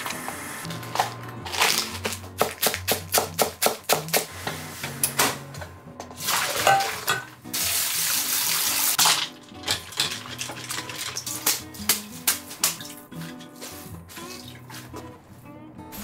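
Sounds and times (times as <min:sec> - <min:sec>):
background music: 0:00.0 - 0:16.0
water pouring and running: 0:06.2 - 0:11.6.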